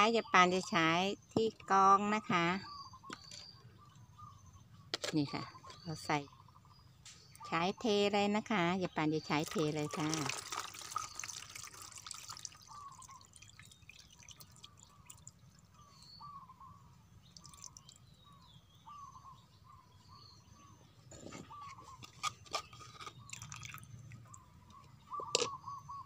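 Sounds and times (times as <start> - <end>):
juice trickling into cup: 9.4 - 15.8, 17.2 - 18.1, 22.6 - 24.5.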